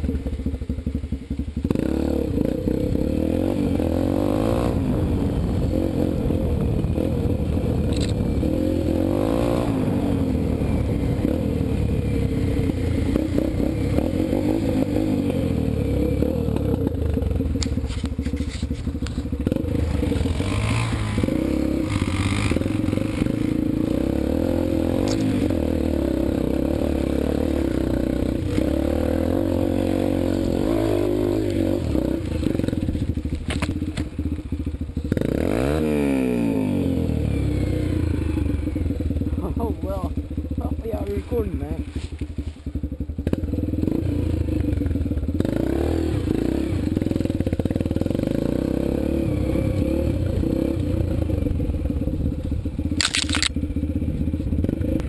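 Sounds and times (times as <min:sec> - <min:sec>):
dirt bike engine revving: 0:01.6 - 0:52.2
clattering and scraping: 0:17.6 - 0:19.3.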